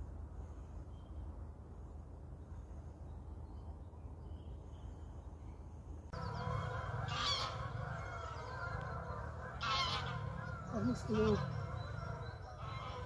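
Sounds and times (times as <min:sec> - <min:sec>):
low outdoor rumble: 0:00.0 - 0:13.0
geese honking overhead: 0:06.2 - 0:13.0.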